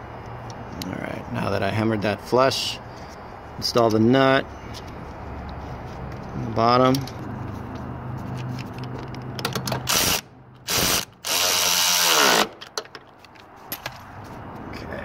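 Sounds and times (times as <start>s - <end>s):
power drill spinning nut: 9.8s - 12.6s.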